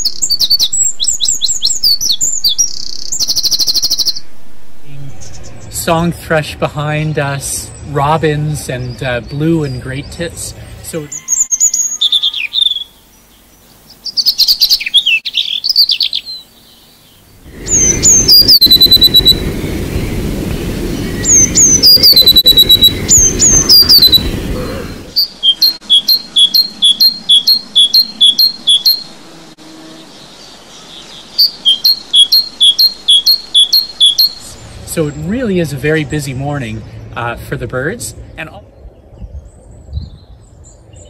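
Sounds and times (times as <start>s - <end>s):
blue tit trilling song: 0.0s - 4.2s, 8.9s - 20.2s, 20.9s - 24.4s, 25.1s - 29.1s, 30.2s - 34.9s
robin warbling song: 0.0s - 41.0s
low background rumble: 17.2s - 25.2s.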